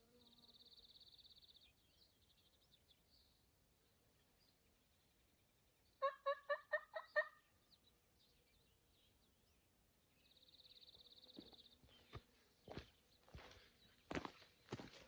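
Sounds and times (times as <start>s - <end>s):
faint high bird chirps: 0.0s - 3.5s
turkey gobbling: 6.0s - 7.4s.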